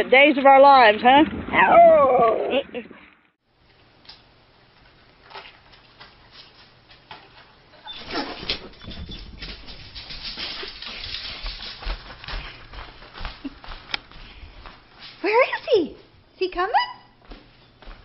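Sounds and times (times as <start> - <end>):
dog jumping and running: 5.3 - 13.8.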